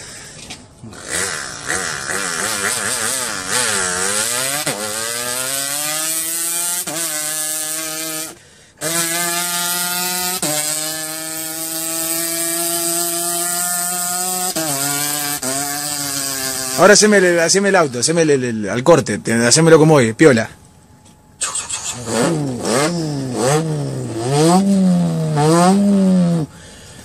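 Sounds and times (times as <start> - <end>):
boy imitating motorcycle engine: 0.8 - 17.0, 21.5 - 26.6.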